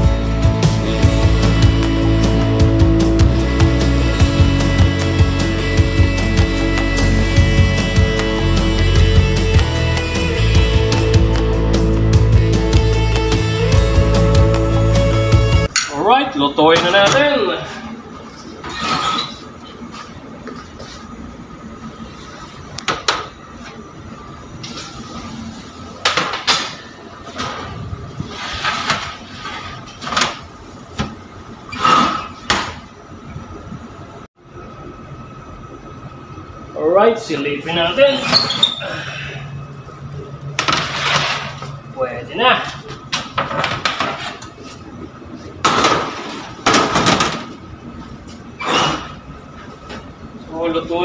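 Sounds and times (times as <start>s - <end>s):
steady hum: 0.0s - 51.0s
metal baking trays scraping: 18.6s - 19.5s, 28.2s - 30.2s, 40.7s - 41.7s
metal trays clanking and scraping: 18.6s - 19.5s, 26.1s - 30.4s, 40.6s - 41.8s, 43.1s - 44.6s.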